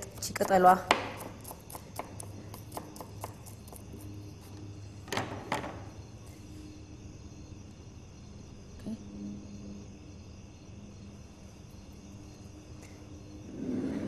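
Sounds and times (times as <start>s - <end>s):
knife chopping on cutting board: 0.0s - 3.8s.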